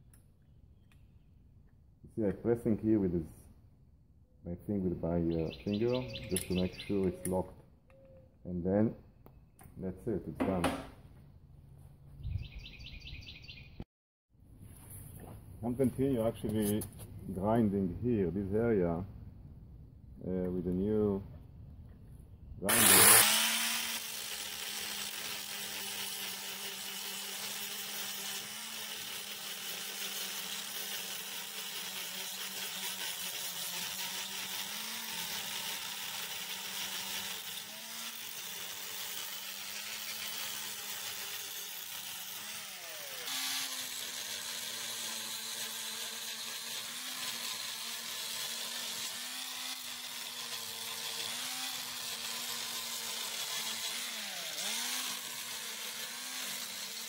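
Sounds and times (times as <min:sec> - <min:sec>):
angle grinder grinding metal: 0:05.3 - 0:07.5, 0:22.6 - 0:57.0.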